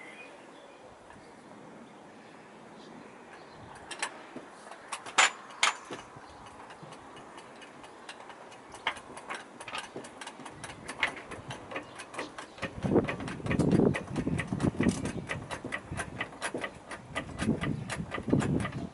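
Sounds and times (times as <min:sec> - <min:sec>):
vehicle jack clicking: 0:03.8 - 0:18.9.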